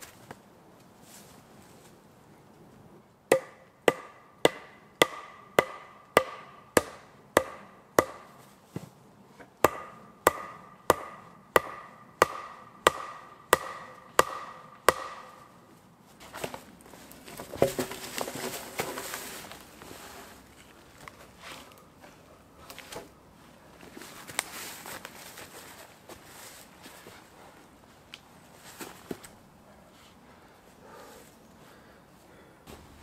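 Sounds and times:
tool striking wooden post: 0:03.3 - 0:08.4, 0:09.6 - 0:15.6
log scraping and rustling: 0:16.1 - 0:27.3.

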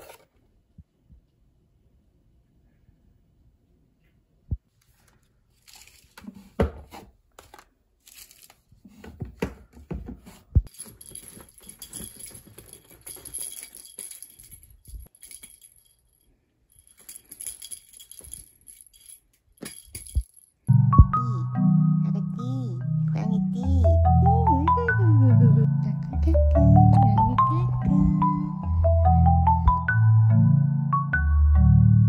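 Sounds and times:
toy jingling: 0:10.7 - 0:20.7.

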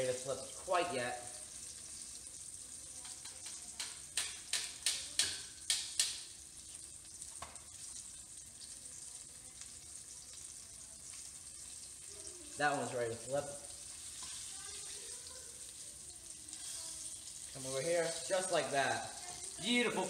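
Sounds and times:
fish frying in oil: 0:00.0 - 0:20.0.

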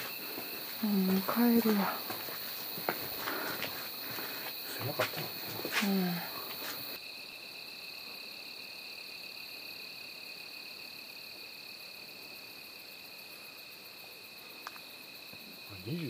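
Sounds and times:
crickets trilling: 0:00.0 - 0:16.0
small tick: 0:14.6 - 0:14.9.

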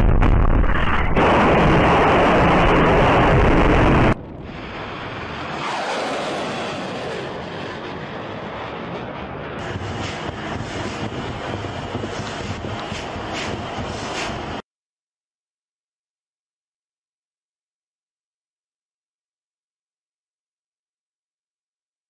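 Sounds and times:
loud rocket blast: 0:00.0 - 0:14.6
missile rushing noise: 0:00.0 - 0:14.6.

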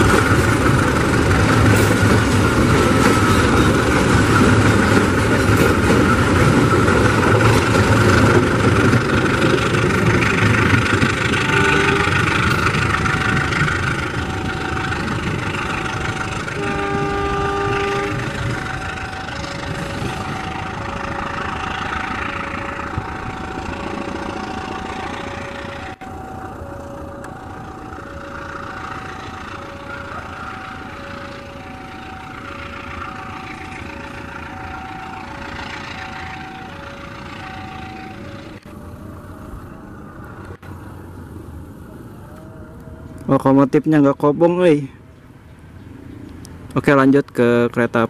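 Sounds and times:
train rolling on rails: 0:00.0 - 0:48.0
level-crossing two-tone alarm: 0:11.0 - 0:40.2.

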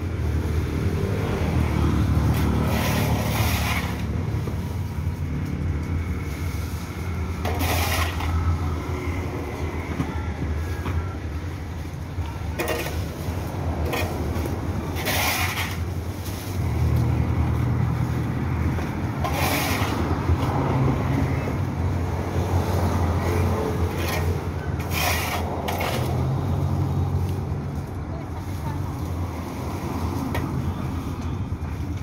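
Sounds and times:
street traffic engine noise: 0:00.0 - 0:32.0
metal shovel scraping pavement: 0:02.1 - 0:04.9, 0:06.2 - 0:09.1, 0:12.4 - 0:17.2, 0:18.7 - 0:21.4, 0:22.7 - 0:26.9.

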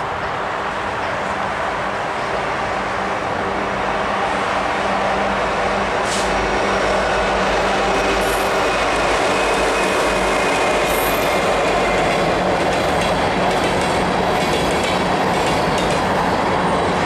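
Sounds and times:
diesel locomotive engine drone: 0:00.0 - 0:17.0
brief hiss: 0:06.0 - 0:06.4.

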